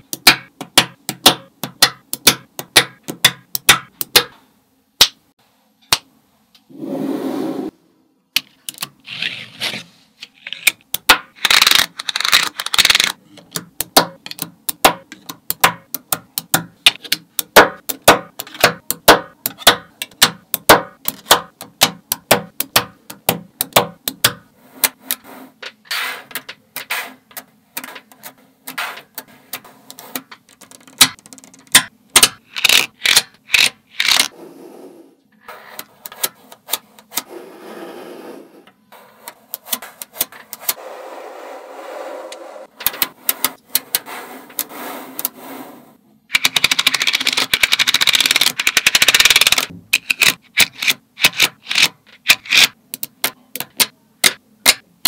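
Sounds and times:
magnet balls clicking together: 0:10.4 - 0:25.2, 0:26.3 - 0:34.3, 0:46.3 - 0:54.8.

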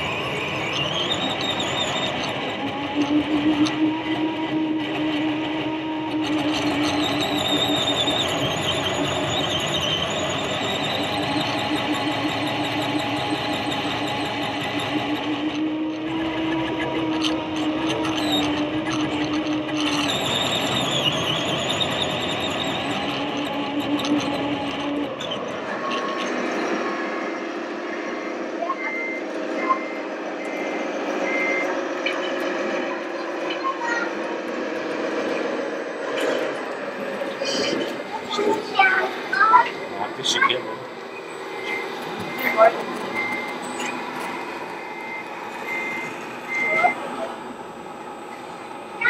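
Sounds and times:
electric motor whining: 0:00.0 - 0:27.2.

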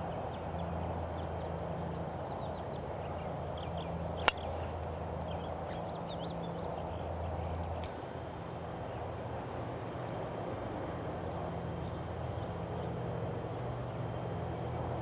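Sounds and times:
golf club striking ball: 0:04.2 - 0:04.9.

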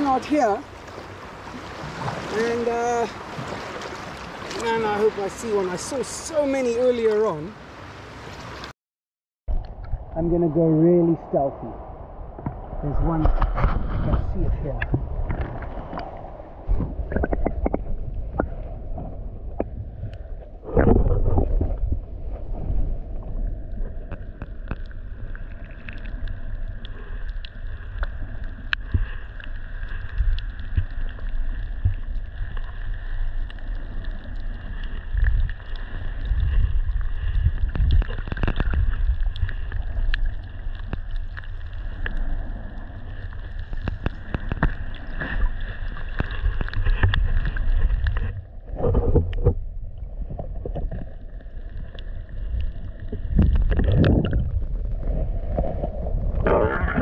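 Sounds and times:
muffled underwater surf rumble: 0:09.5 - 0:57.0
small clicks and knocks underwater: 0:13.2 - 0:22.0, 0:23.1 - 0:57.0.

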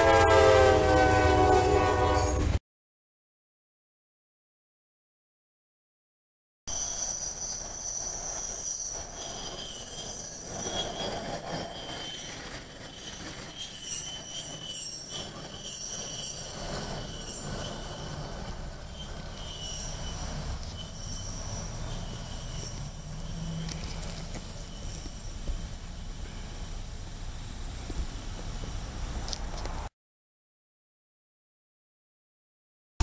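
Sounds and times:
steel wheels squealing on rails: 0:00.0 - 0:02.6, 0:06.7 - 0:29.9.

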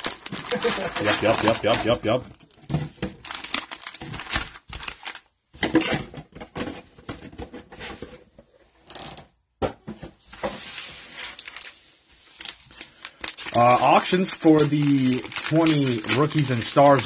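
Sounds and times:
crinkly foil rustle: 0:00.0 - 0:02.2, 0:03.2 - 0:05.3, 0:10.6 - 0:17.0
foil card packs crinkling: 0:00.0 - 0:02.2, 0:03.2 - 0:05.3, 0:10.6 - 0:17.0.

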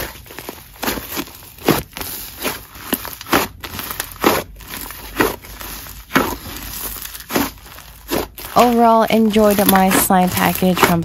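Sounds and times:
slime crackling when squeezed: 0:00.0 - 0:11.0.

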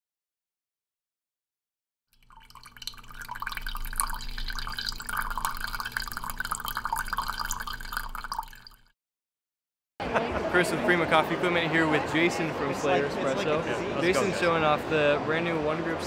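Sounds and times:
coffee trickling into a mug: 0:02.2 - 0:08.9.

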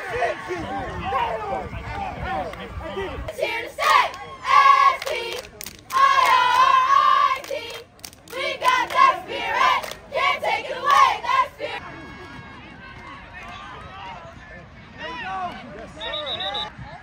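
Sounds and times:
cheerleaders chanting in unison: 0:03.3 - 0:11.8
people clapping: 0:04.8 - 0:11.1.

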